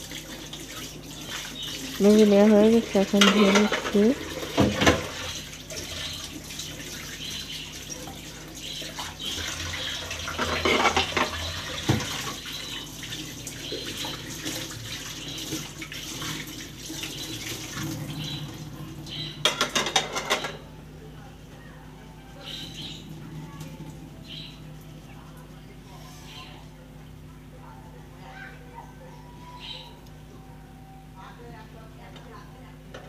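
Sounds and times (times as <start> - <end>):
plates rinsed under water: 0.0 - 20.6
tap water running into sink: 0.0 - 20.6
plates clinking together: 3.2 - 4.0, 10.4 - 12.0, 19.4 - 20.6.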